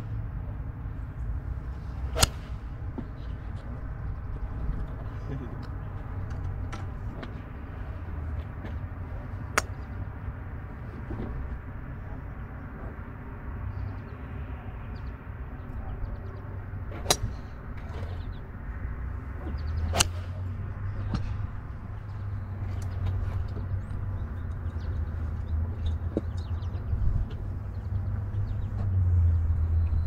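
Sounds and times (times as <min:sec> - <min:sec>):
steady low rumble: 0:00.0 - 0:30.0
golf club striking ball: 0:02.1 - 0:02.6, 0:19.9 - 0:20.4.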